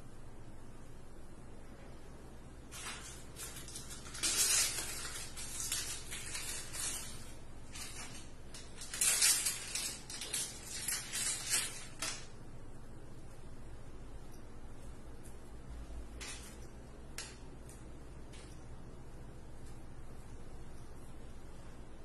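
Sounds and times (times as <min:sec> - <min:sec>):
wrapper crinkling and rustling: 0:02.7 - 0:12.3.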